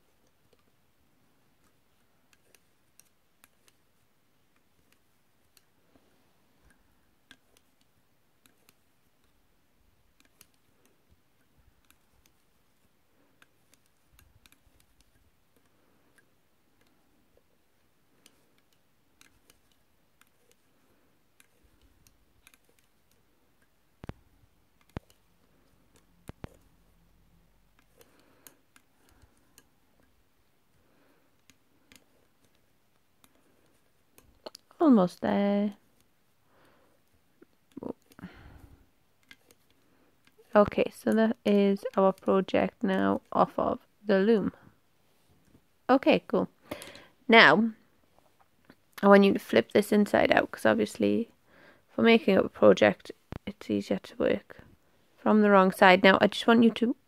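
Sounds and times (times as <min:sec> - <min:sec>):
loom hook clicking on pegs: 0:00.0 - 0:05.9, 0:06.5 - 0:36.2, 0:36.9 - 0:44.6.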